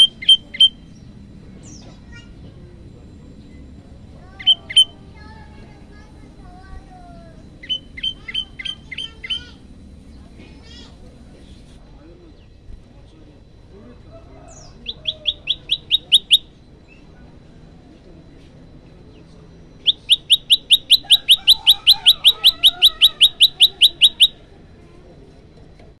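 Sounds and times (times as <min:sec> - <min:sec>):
bird rapid rising chirps: 0:00.0 - 0:02.2, 0:03.4 - 0:10.4, 0:14.3 - 0:17.1, 0:19.7 - 0:24.4.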